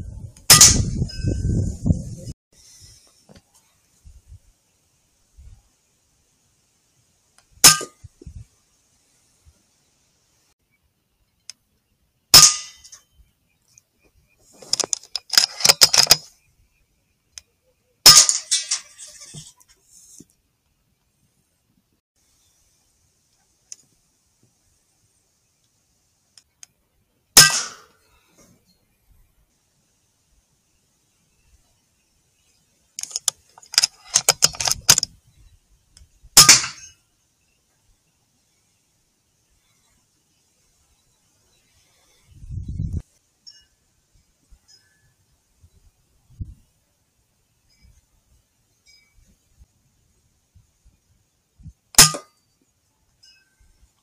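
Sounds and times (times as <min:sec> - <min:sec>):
rapid clicks and rattles: 0:14.7 - 0:16.3, 0:33.0 - 0:35.1.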